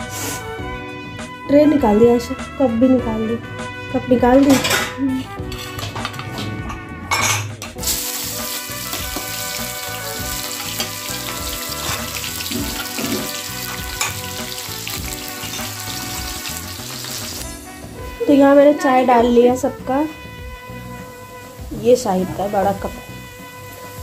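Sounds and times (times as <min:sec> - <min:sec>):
onions sizzling in hot oil: 0:07.8 - 0:17.7, 0:20.4 - 0:24.0.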